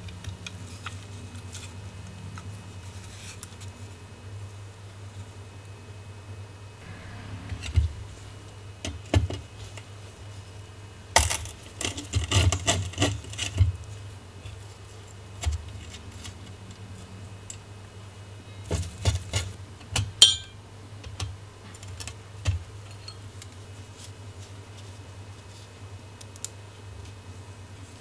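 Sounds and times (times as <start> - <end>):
small metal piece ringing: 20.2 - 20.6.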